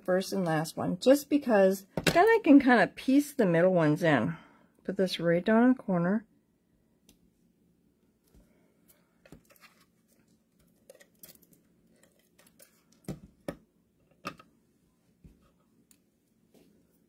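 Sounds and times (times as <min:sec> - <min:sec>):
paper rustling: 0:09.3 - 0:13.0.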